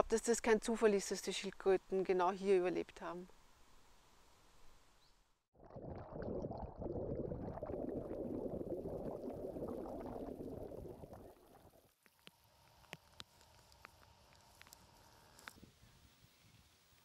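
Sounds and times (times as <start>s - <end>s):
water bubbling underwater: 5.6s - 11.9s.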